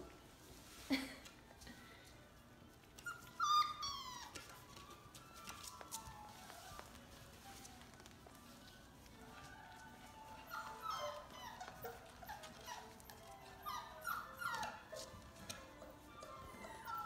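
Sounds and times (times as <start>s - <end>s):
puppies whimpering and yelping: 3.0s - 8.0s, 8.6s - 17.0s.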